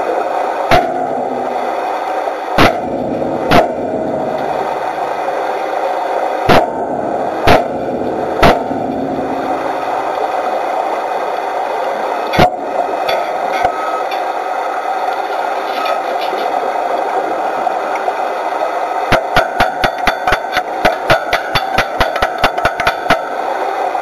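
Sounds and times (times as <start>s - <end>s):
underwater background rush: 0.0s - 24.0s
hammer blows on steel underwater: 0.7s - 1.6s, 2.6s - 4.6s, 6.5s - 9.7s, 19.1s - 23.3s.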